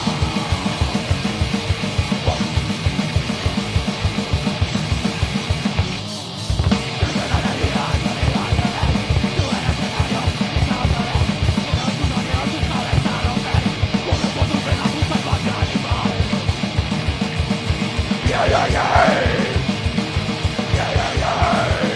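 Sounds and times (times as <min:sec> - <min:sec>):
fast kick drum beat: 0:00.0 - 0:06.0, 0:06.6 - 0:21.9
heavy metal band playing: 0:00.0 - 0:21.9.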